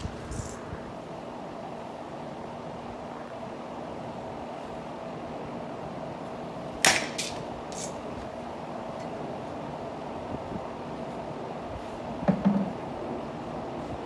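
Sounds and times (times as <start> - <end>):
steady hum: 0.0 - 14.0
bat hitting softball crack: 6.8 - 7.4.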